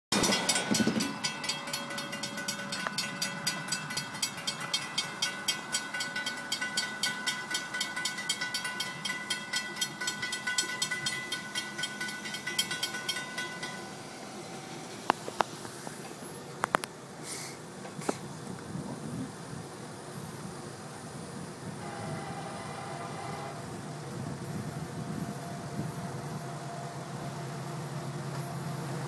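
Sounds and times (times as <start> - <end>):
crossing warning bell ringing: 0.1 - 15.5, 21.8 - 29.0.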